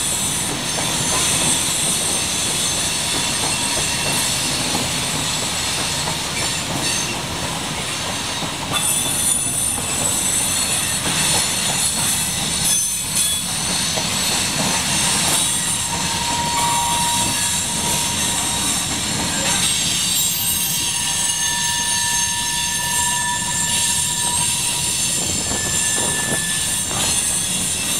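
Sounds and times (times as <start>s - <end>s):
steel wheels rumbling on rail: 0.0s - 27.9s
high-pitched wheel squeal: 14.8s - 27.9s.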